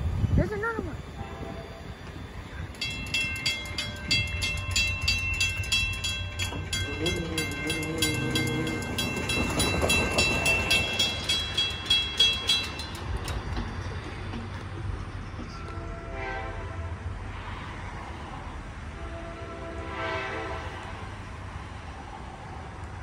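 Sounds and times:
railroad crossing bell ringing: 0.0 - 16.6
train horn: 1.2 - 1.9, 6.6 - 10.8, 15.5 - 17.2, 18.9 - 21.2.

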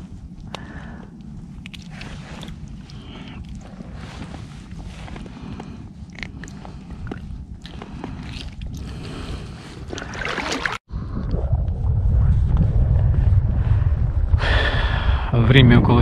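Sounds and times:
wind rumbling on microphone: 0.0 - 16.0
fish splashing in shallow water: 7.1 - 10.9.

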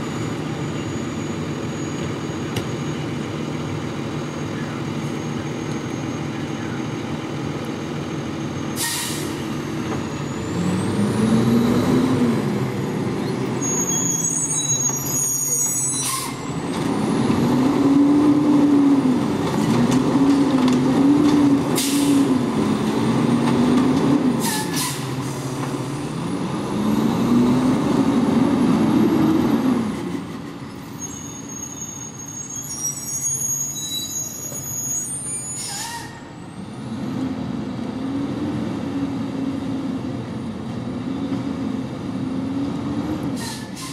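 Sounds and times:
diesel truck engine revving: 3.2 - 15.5, 16.5 - 30.0, 36.7 - 43.4
air brake hisses: 8.8 - 9.5, 21.8 - 22.3, 24.4 - 25.6, 43.4 - 43.9.

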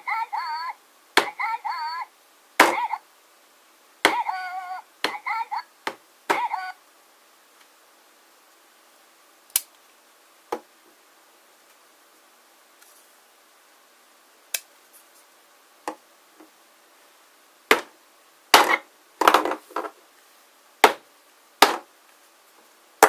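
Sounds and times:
plastic toys knocking on table: 18.6 - 19.9.

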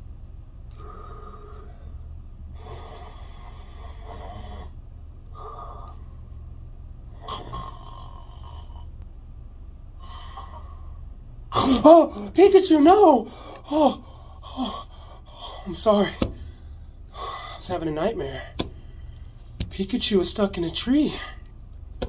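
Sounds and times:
man snoring: 2.6 - 4.8, 7.2 - 8.9.

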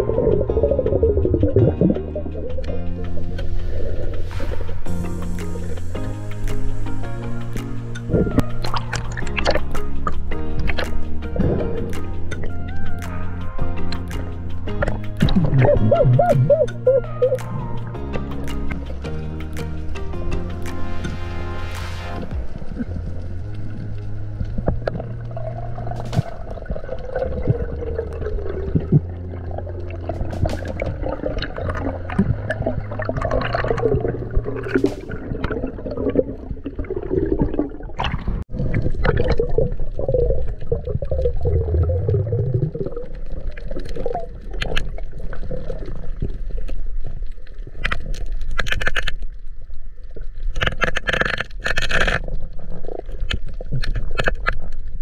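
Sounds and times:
water gurgling underwater: 0.0 - 5.0, 14.8 - 17.8, 22.4 - 55.0
choppy surface water: 0.0 - 55.0
clicks and splashes: 0.1 - 55.0.

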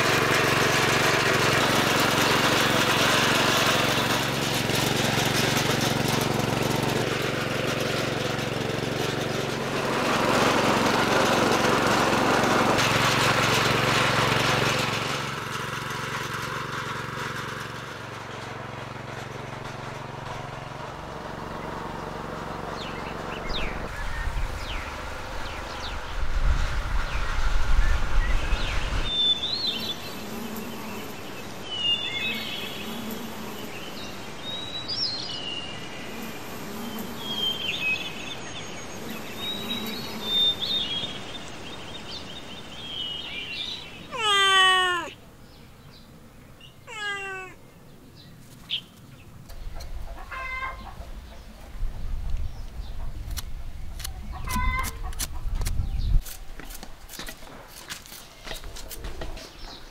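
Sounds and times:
birds chirping: 20.2 - 26.2, 28.2 - 59.9
hen clucking: 44.0 - 45.2, 46.9 - 47.6, 49.8 - 51.2, 54.3 - 55.6
cat meowing: 44.1 - 45.2, 46.8 - 47.6.

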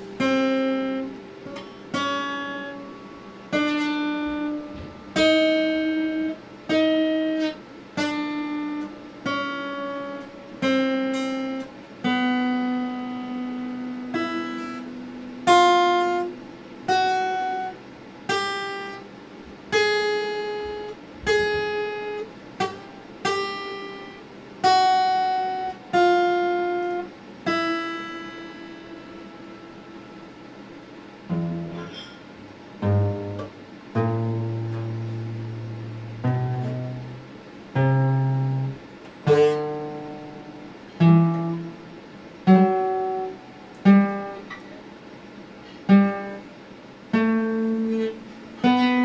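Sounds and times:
acoustic guitar chords: 0.0 - 49.0.

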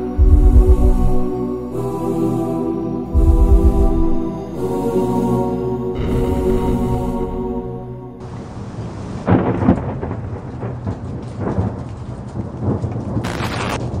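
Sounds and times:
wind buffeting microphone: 0.0 - 1.4, 8.2 - 14.0.

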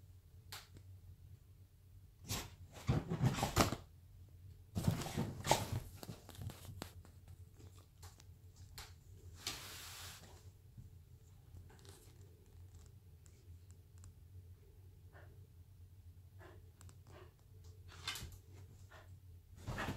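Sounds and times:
dog paws scuffling on cushions: 4.8 - 7.8.

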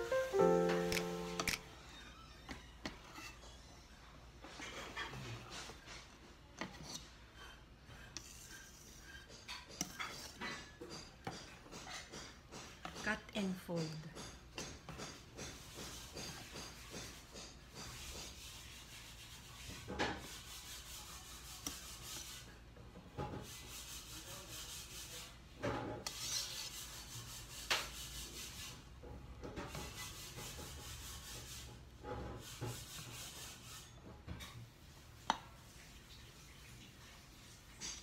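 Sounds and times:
spatula scraping metal bowl: 0.0 - 1.7, 2.5 - 3.7, 4.4 - 22.6, 23.3 - 28.8.

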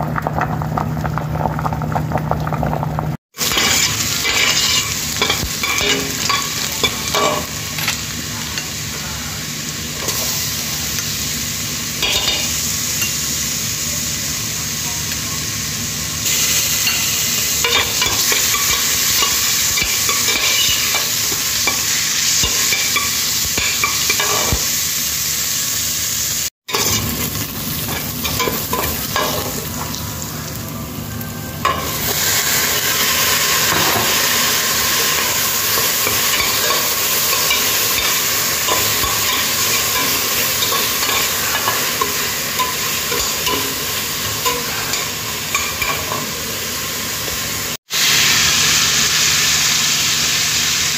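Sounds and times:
food sizzling in a frying pan: 0.0 - 50.9
utensil scraping a pan: 3.4 - 7.5.

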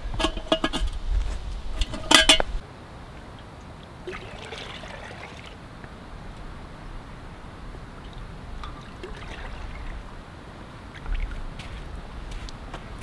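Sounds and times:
metal pot lid clinking: 0.2 - 0.9, 1.8 - 2.6
lake water trickling and lapping: 3.1 - 12.6.

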